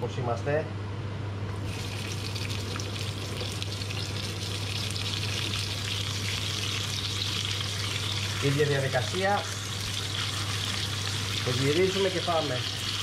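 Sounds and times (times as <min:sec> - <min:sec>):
meat sizzling in hot oil: 0:01.6 - 0:13.0.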